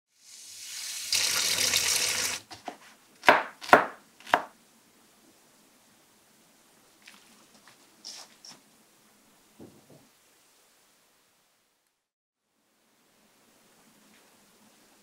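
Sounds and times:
tap water running into bowl: 0.5s - 2.5s.

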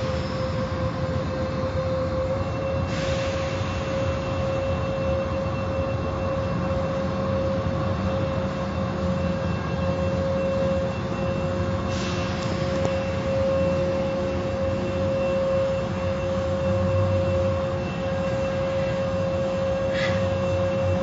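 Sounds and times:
car wash machinery drone: 0.0s - 21.0s
burst of hiss: 19.9s - 20.3s.

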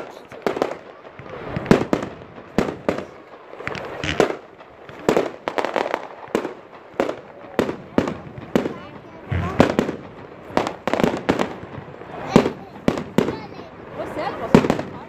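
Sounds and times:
fireworks bangs: 0.0s - 15.0s.

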